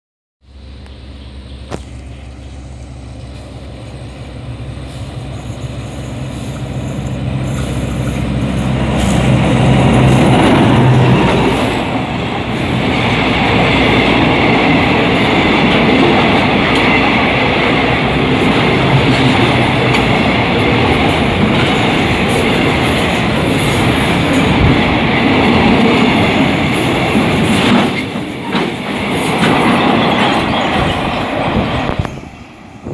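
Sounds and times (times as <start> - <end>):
diesel locomotive engine passing: 0.4 - 32.9
train wheels on rails: 0.5 - 32.9.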